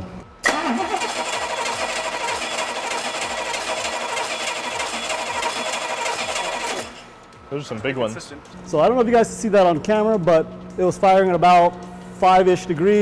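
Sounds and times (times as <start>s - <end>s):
starter motor cranking engine: 0.4s - 7.1s.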